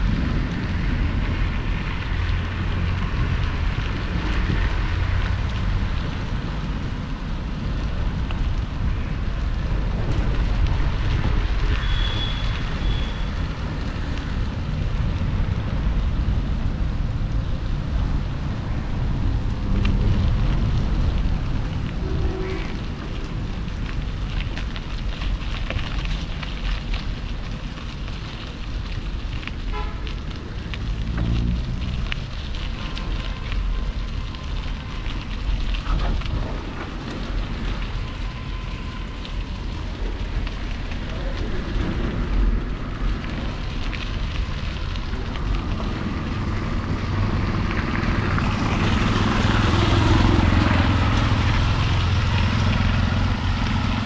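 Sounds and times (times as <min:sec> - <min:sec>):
street traffic noise: 0:00.0 - 0:54.0
wind rushing over microphone: 0:00.0 - 0:54.0
motor vehicle engine approaching: 0:30.6 - 0:33.0, 0:40.2 - 0:54.0.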